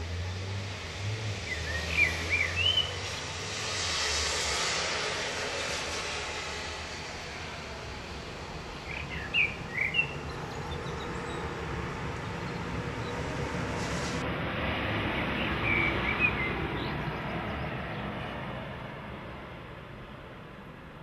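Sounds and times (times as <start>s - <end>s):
train passing rumble: 0.0s - 21.0s
bird chirps: 1.5s - 3.2s, 8.8s - 11.6s.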